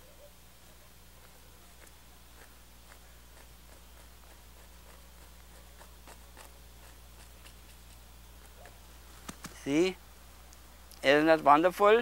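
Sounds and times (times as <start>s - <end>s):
steady low hum: 0.0s - 12.0s
brush scratching on canvas: 1.2s - 8.1s.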